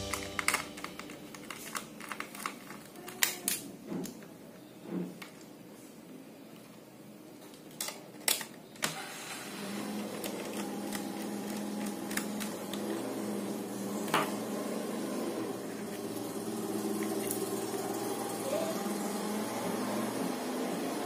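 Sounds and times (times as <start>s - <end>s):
steady low hum: 0.0s - 2.5s
plastic laptop parts handled: 0.4s - 4.2s, 10.1s - 13.0s.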